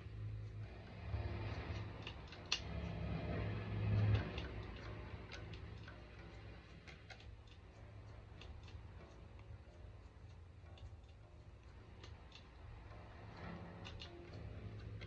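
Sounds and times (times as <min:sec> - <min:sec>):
pick and string clicks: 0:00.0 - 0:15.0.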